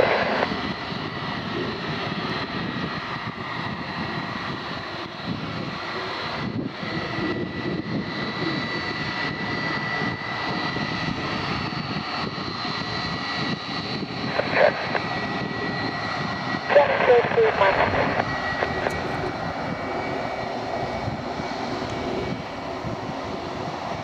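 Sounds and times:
jet engines whining at taxi power: 0.0s - 24.0s.

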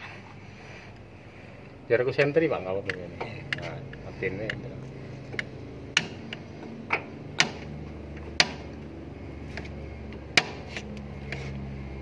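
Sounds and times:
light metallic taps: 2.2s - 4.7s.

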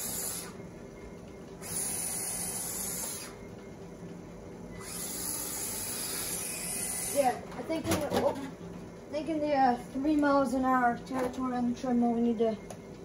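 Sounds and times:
treadmill high hiss: 0.0s - 7.5s
treadmill motor hum: 0.0s - 13.0s.

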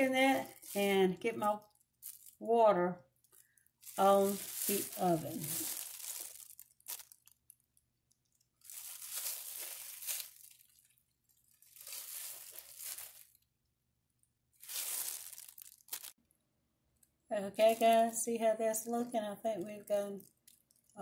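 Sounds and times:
plastic gloves and bag crinkling: 0.0s - 2.4s, 3.1s - 13.6s, 14.6s - 16.2s, 17.6s - 18.2s, 20.1s - 21.0s
corn husks being torn: 3.9s - 7.7s, 8.5s - 10.9s, 11.6s - 13.4s, 14.6s - 16.2s.

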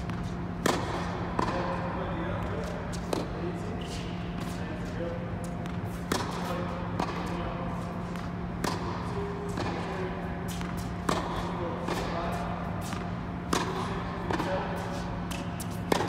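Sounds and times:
ball bouncing: 0.0s - 1.8s, 8.6s - 12.1s
racquet hitting tennis ball: 0.0s - 4.6s, 5.4s - 16.0s.

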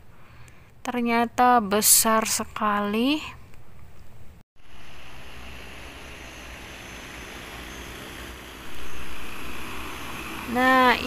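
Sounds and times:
drone rotor noise: 4.6s - 11.0s.

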